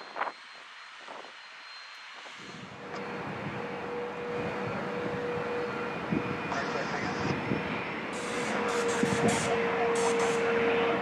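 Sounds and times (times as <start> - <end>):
jet engines running: 0.0 - 11.0
steady engine tone: 0.0 - 11.0.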